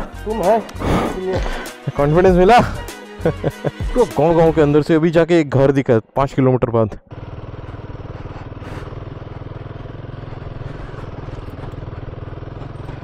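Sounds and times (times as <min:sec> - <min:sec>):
motorcycle engine running: 0:07.0 - 0:13.0.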